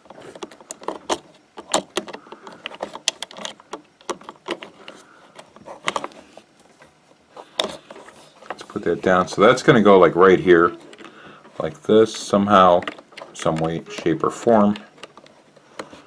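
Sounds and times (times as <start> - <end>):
plastic connectors clicking: 12.1 - 16.0.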